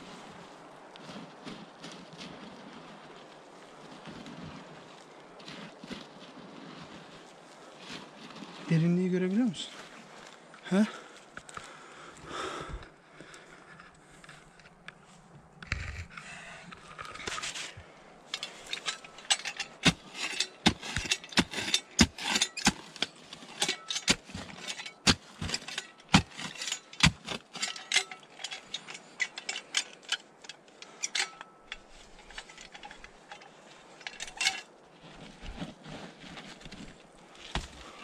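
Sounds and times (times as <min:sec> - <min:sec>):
digging tool striking stony ground: 0:18.3 - 0:30.5, 0:37.4 - 0:38.0.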